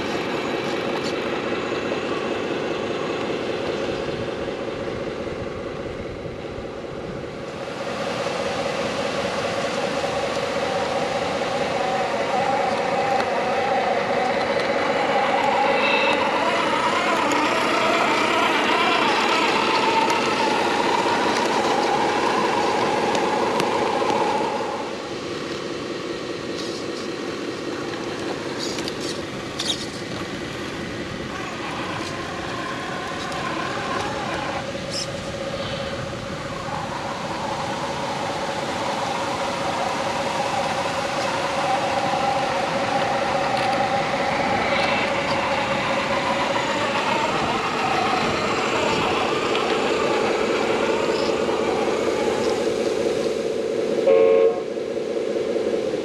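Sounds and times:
toy truck motor droning: 0:09.2 - 0:25.6, 0:27.8 - 0:35.3, 0:36.5 - 0:52.7.

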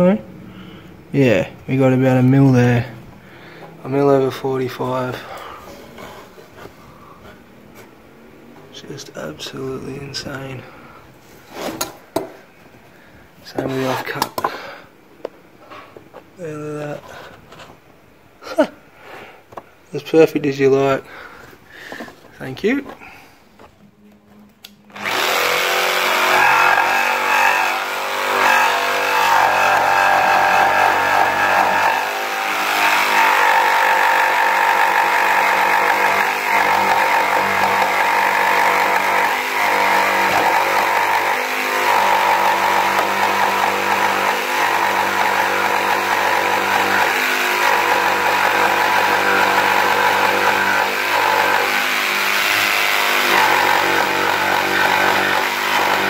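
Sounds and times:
jigsaw cutting wood: 0:24.9 - 0:56.0.

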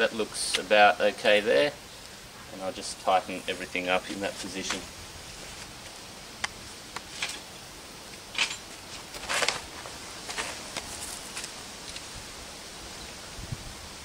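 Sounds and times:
faint outdoor hiss: 0:00.0 - 0:14.0
tools and parts clicking: 0:08.3 - 0:08.7.

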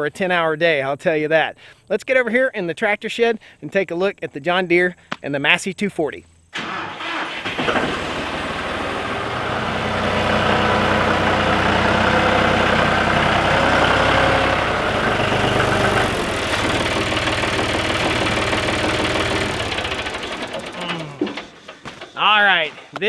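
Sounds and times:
tractor diesel engine running: 0:06.6 - 0:22.6.

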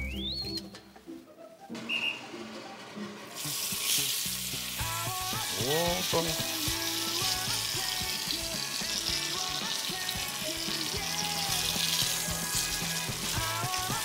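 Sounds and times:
steak sizzling in a frying pan: 0:03.4 - 0:14.0.

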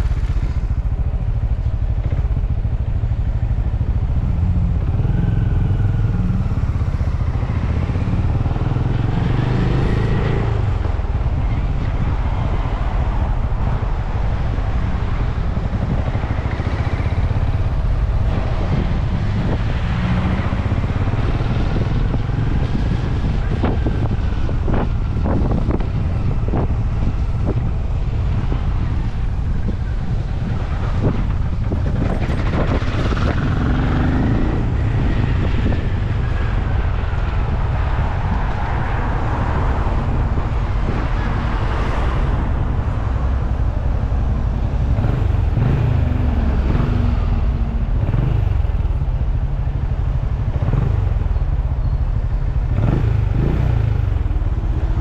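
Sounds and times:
motorcycle engine running: 0:14.2 - 0:38.0.

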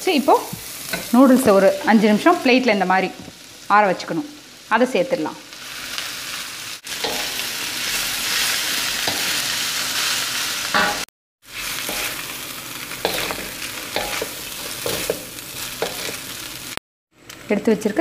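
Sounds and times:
food sizzling in a wok: 0:00.0 - 0:16.8
spatula scraping and knocking pan: 0:11.8 - 0:12.3, 0:13.0 - 0:16.2.

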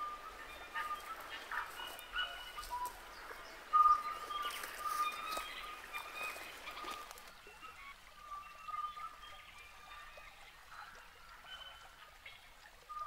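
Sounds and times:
birds singing whistled notes: 0:00.0 - 0:13.0
footsteps crunching on twigs: 0:04.2 - 0:07.3.

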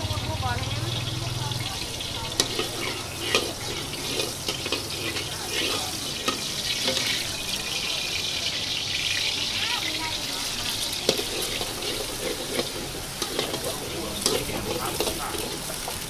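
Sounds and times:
hot oil sizzling in a wok: 0:00.0 - 0:16.0
metal ladle scraping a wok: 0:00.9 - 0:16.0.

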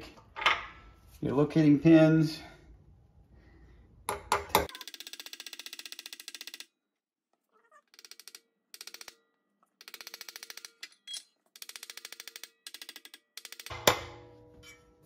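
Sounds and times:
ratchet wrench clicking: 0:07.9 - 0:09.2, 0:11.6 - 0:13.7.

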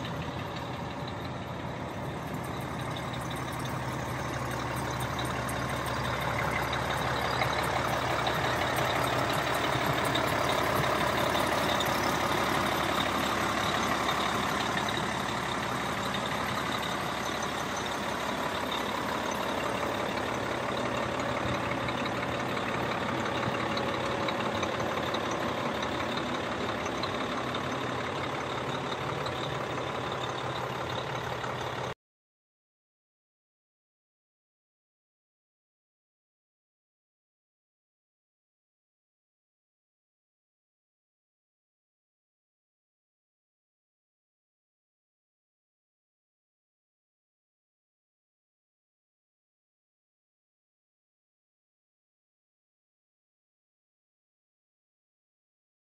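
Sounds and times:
diesel truck idling: 0:00.0 - 0:32.0.

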